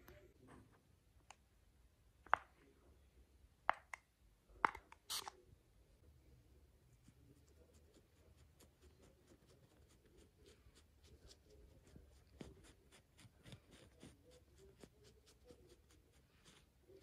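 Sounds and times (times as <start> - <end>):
gauze pad dabbing skin: 7.0 - 17.0.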